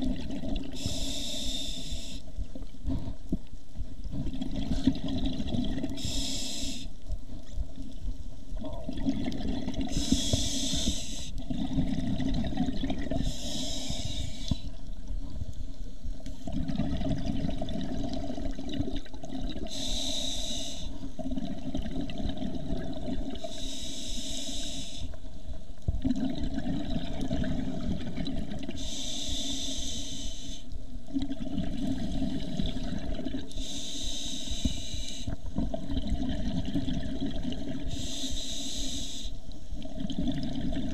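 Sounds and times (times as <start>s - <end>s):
exhaled bubbles: 0.0s - 2.2s, 4.0s - 6.8s, 8.5s - 14.8s, 16.4s - 23.7s, 25.9s - 29.5s, 31.1s - 33.8s, 34.5s - 38.2s, 39.8s - 40.9s
muffled underwater rumble: 0.0s - 40.9s
regulator hiss: 0.8s - 2.3s, 6.0s - 6.9s, 9.9s - 11.4s, 13.2s - 14.7s, 19.7s - 21.0s, 23.4s - 25.2s, 28.8s - 30.7s, 33.5s - 35.4s, 37.9s - 39.6s.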